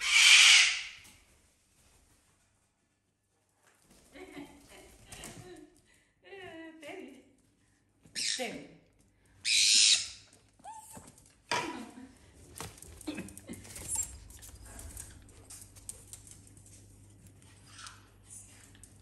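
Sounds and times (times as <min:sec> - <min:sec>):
parrot squawking: 0:00.0 - 0:01.0, 0:09.4 - 0:10.3
paws pattering on floor: 0:12.2 - 0:19.0.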